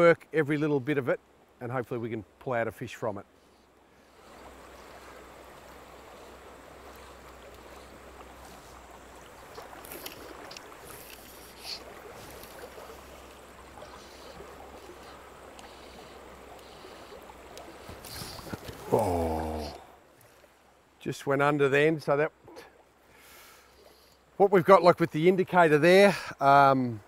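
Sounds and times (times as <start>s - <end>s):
river water flowing: 0.0s - 27.0s
faint ticks: 4.3s - 20.5s.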